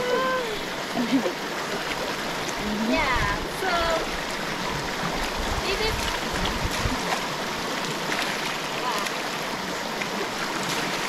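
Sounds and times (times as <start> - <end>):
river water running: 0.0 - 11.0.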